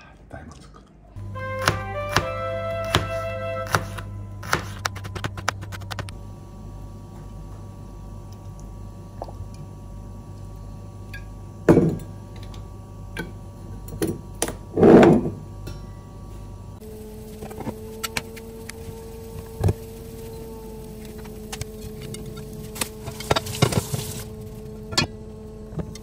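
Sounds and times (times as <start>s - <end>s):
steady low hum: 0.0s - 26.0s
background music: 1.2s - 5.3s.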